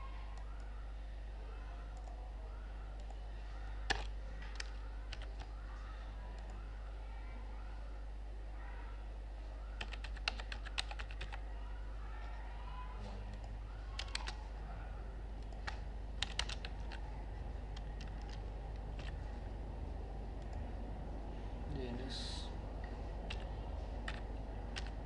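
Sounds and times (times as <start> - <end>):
steady low hum: 0.0 - 25.0
keyboard typing: 3.8 - 5.7, 9.7 - 11.5, 13.3 - 14.6, 15.4 - 19.5, 22.8 - 25.0.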